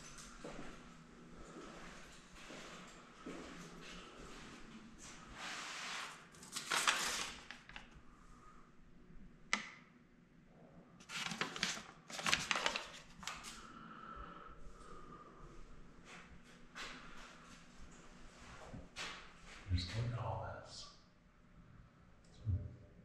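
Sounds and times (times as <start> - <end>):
stiff paper rustling and crinkling: 6.0 - 8.0, 11.0 - 13.6.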